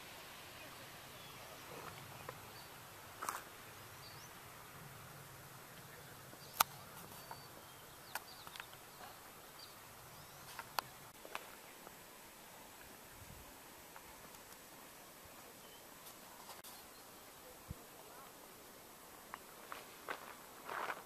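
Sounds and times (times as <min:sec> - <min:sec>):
faint steady hiss: 0:00.0 - 0:21.0
sharp clicks: 0:06.4 - 0:07.4, 0:08.1 - 0:08.8.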